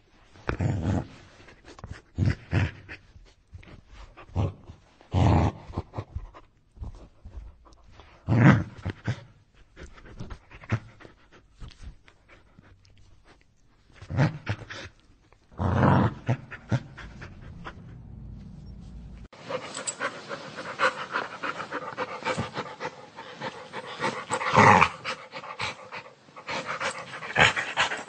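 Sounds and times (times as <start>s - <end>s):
dog snarling and growling: 4.2s - 6.1s, 15.5s - 18.3s, 19.5s - 28.0s
dog rasping breaths: 16.1s - 18.2s, 19.4s - 28.0s.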